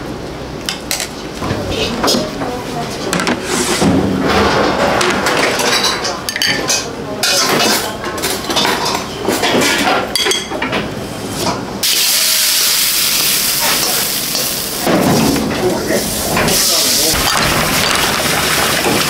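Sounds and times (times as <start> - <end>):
stir-fry hissing sizzle: 11.8 - 17.3.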